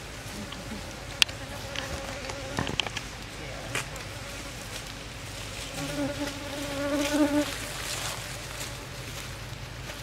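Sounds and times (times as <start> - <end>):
low hum of bees: 0.0 - 10.0
bee buzzing close by: 0.5 - 2.8, 5.7 - 9.0.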